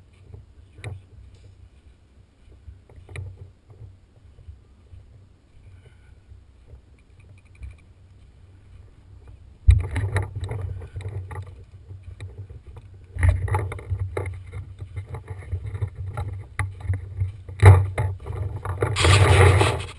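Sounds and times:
camera handling noise: 19.0s - 19.9s.

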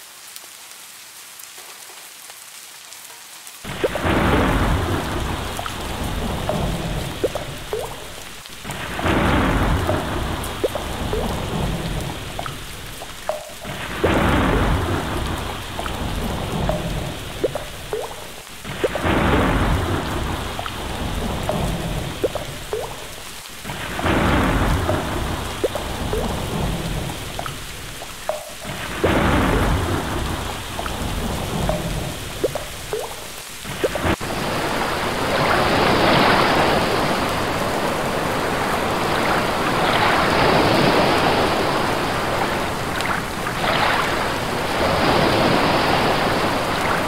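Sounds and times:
steady rain: 0.0s - 47.0s
drop plinks: 6.4s - 8.3s, 9.7s - 19.1s, 21.4s - 23.3s, 24.7s - 26.4s, 27.4s - 29.8s, 30.7s - 34.0s
rumbling thunder: 8.8s - 12.4s, 13.7s - 17.6s, 18.7s - 22.4s, 23.8s - 27.4s, 28.7s - 32.4s.

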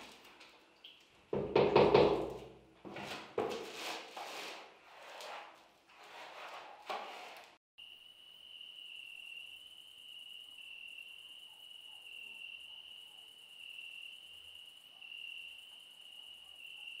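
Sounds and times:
crickets trilling: 7.8s - 17.0s.

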